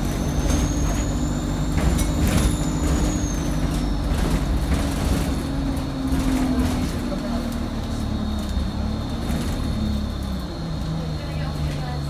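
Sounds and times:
bus body rattles: 0:00.0 - 0:12.0
bus diesel engine droning: 0:00.0 - 0:12.0.

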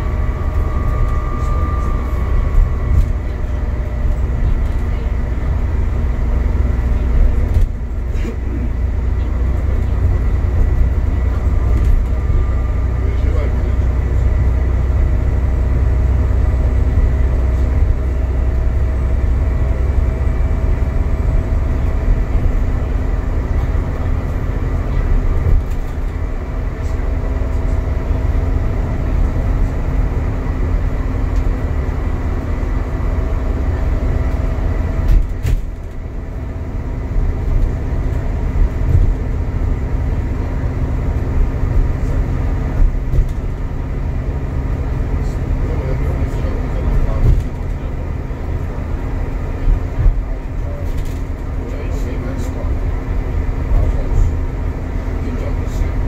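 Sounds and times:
steady whining tones: 0:00.0 - 0:06.7
bus engine and road noise drone: 0:00.0 - 0:56.0.

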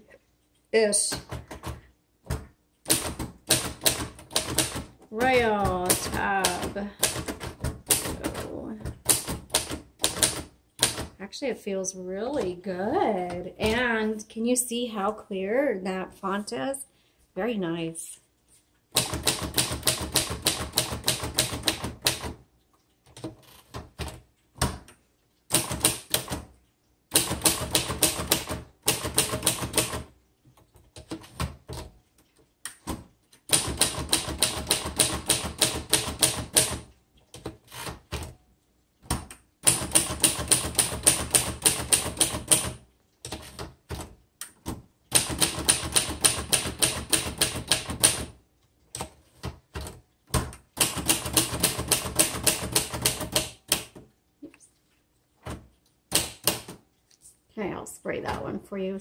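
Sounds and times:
manual typewriter keystrokes: 0:01.1 - 0:11.2, 0:18.9 - 0:22.4, 0:23.0 - 0:38.4, 0:39.0 - 0:54.1, 0:55.4 - 0:56.8.

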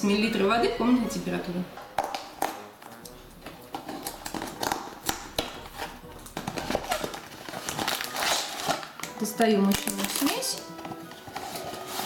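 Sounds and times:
cardboard box being opened: 0:05.7 - 0:08.9, 0:11.0 - 0:12.0.

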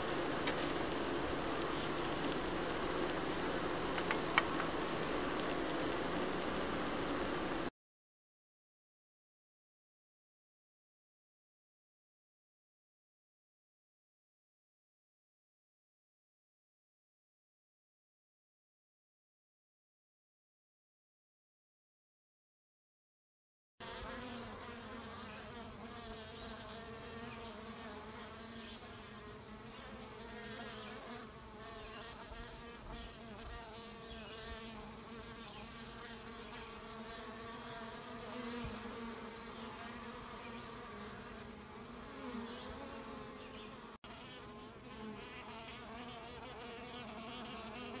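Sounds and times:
honeybees buzzing: 0:00.0 - 0:07.7, 0:23.8 - 0:48.0.

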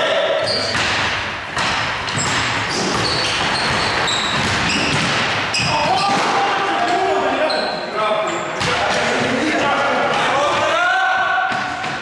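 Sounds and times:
echoing hall noise: 0:00.0 - 0:12.0
sneakers squeaking on floor: 0:00.0 - 0:12.0
basketball bouncing: 0:00.4 - 0:07.0.

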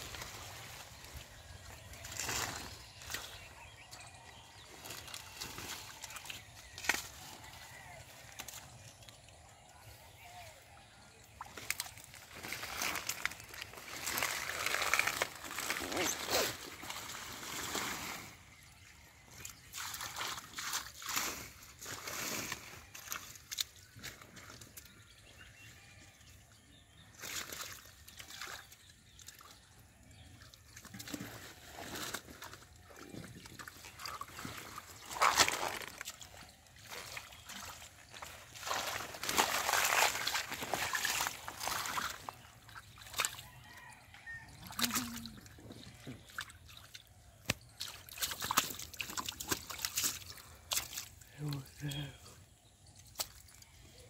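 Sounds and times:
hands sloshing in muddy water: 0:00.0 - 0:22.2, 0:27.0 - 0:54.0
splashes and wet slaps: 0:04.8 - 0:07.2, 0:11.3 - 0:15.7, 0:19.4 - 0:21.3, 0:33.4 - 0:43.5, 0:46.2 - 0:51.3, 0:53.0 - 0:53.7.

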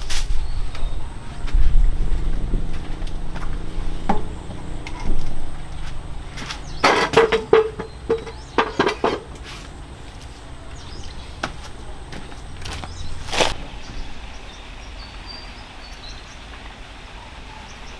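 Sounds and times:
household objects clattering: 0:06.4 - 0:09.6.

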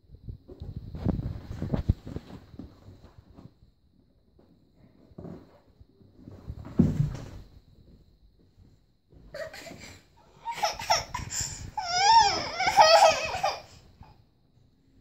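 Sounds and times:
toddler laughing: 0:09.4 - 0:13.8.

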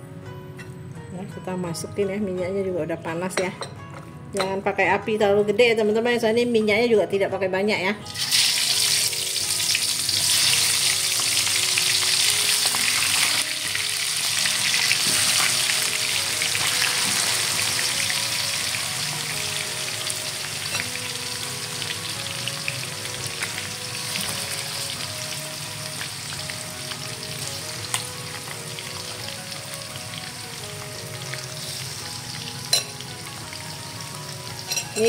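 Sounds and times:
chicken sizzling in oil: 0:08.1 - 0:35.0.

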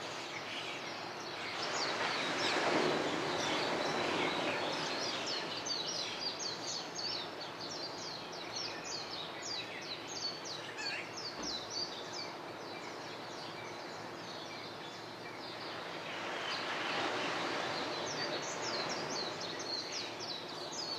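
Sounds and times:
small birds chirping: 0:03.4 - 0:20.9.

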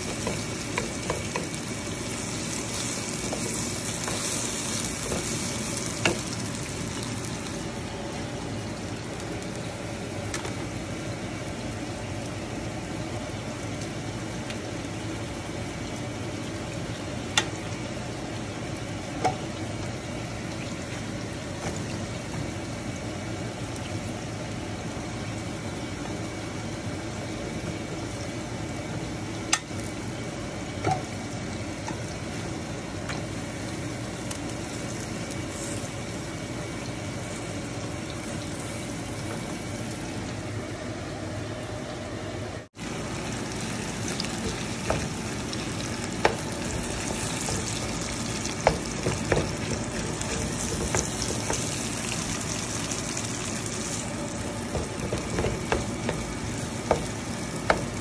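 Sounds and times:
metal spatula knocking on pan: 0:48.6 - 0:51.6, 0:54.8 - 0:56.3.

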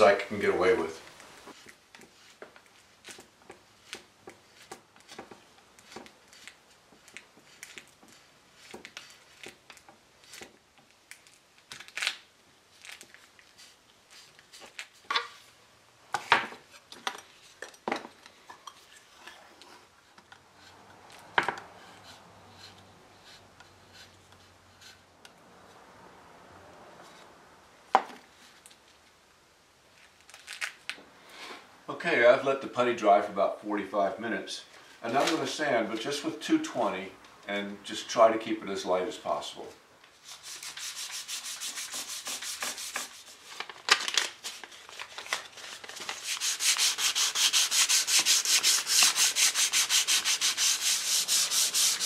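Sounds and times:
putty knife scraping wood: 0:01.5 - 0:10.6, 0:40.3 - 0:43.4, 0:46.0 - 0:52.0.

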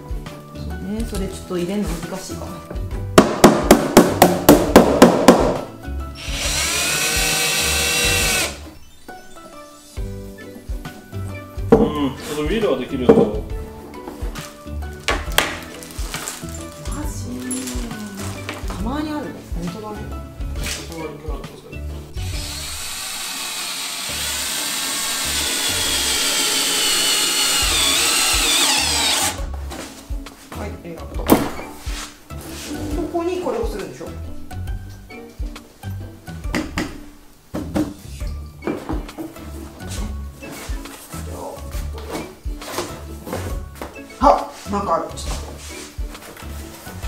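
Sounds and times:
hammer striking wooden panel: 0:03.2 - 0:05.7
cordless drill driving screw: 0:06.2 - 0:08.7, 0:22.3 - 0:29.4.

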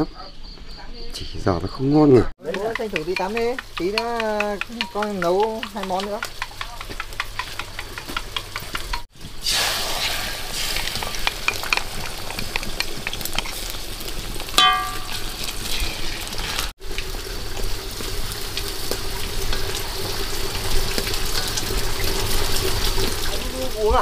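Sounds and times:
food sizzling in a pan: 0:02.4 - 0:24.0.

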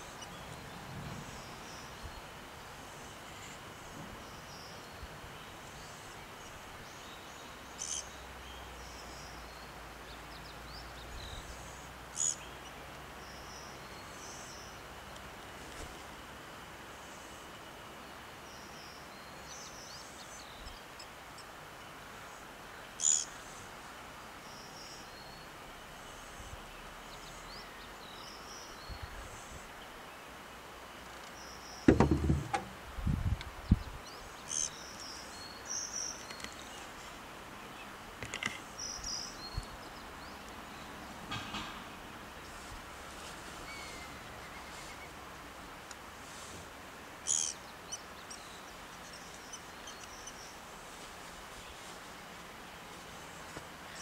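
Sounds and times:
small birds chirping: 0:00.0 - 0:15.5, 0:16.9 - 0:23.7, 0:33.4 - 0:46.5, 0:47.1 - 0:54.0
steady faint hiss: 0:00.0 - 0:54.0
light ticks: 0:45.8 - 0:46.0.

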